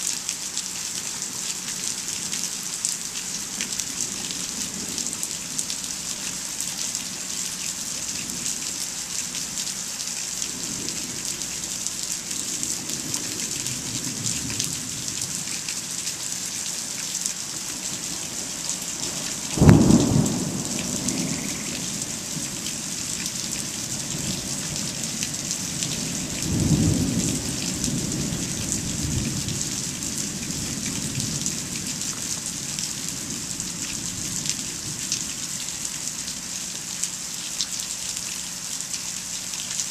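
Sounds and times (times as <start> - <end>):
steady rain falling: 0.0 - 39.9
thunderclap rumbling: 19.5 - 22.7.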